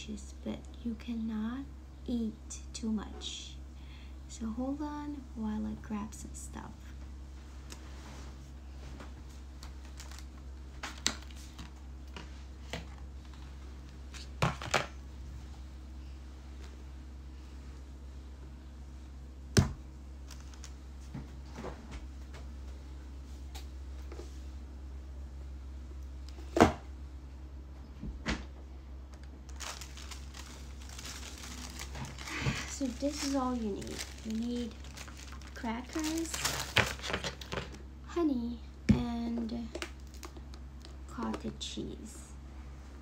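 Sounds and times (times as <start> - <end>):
steady low hum: 0.0 - 43.0
packaging rustling: 9.7 - 11.7, 29.4 - 37.8, 39.7 - 41.0.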